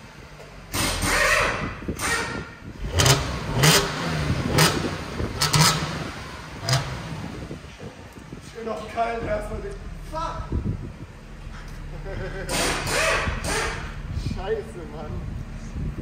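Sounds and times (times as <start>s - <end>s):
car engine revving: 0.7s - 7.7s, 9.7s - 14.2s.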